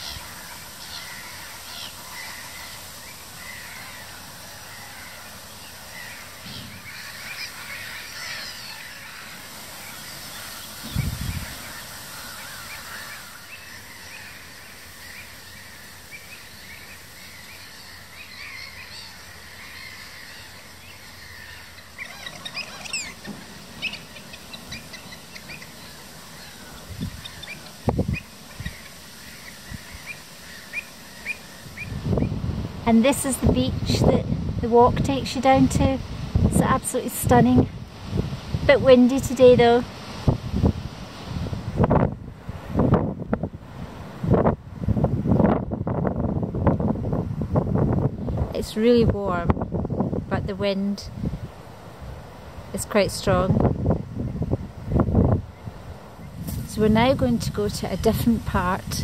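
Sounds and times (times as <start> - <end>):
wetland birds calling: 0.0 - 36.0.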